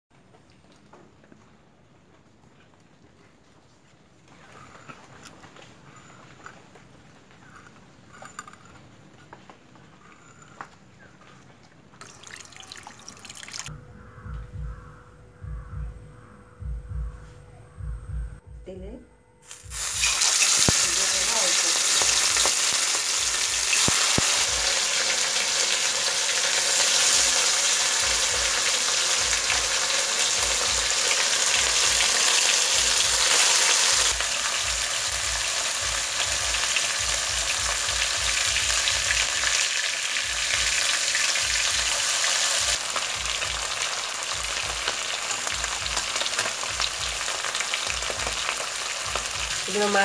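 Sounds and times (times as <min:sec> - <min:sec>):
fish sizzling in hot oil: 0:12.0 - 0:13.7, 0:19.4 - 0:50.0.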